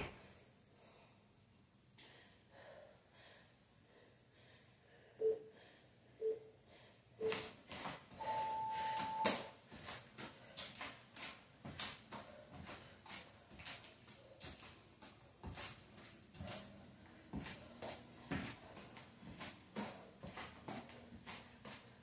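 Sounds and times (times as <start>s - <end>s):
faint breathing: 2.0s - 7.3s
interval timer beeps: 5.2s - 5.5s, 6.2s - 6.4s, 7.2s - 7.4s, 8.2s - 9.5s.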